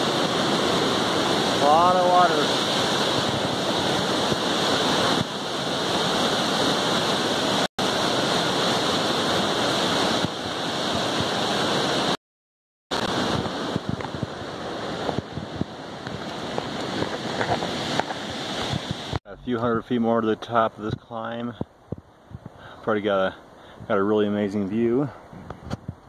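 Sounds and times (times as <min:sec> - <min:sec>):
creek rushing over boulders: 0:00.0 - 0:12.2, 0:12.9 - 0:20.0.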